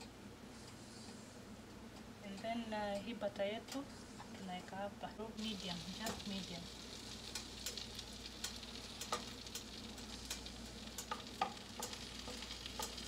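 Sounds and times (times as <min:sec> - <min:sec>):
butter sizzling in a frying pan: 0:05.4 - 0:13.0
sharp pops and ticks: 0:07.3 - 0:13.0.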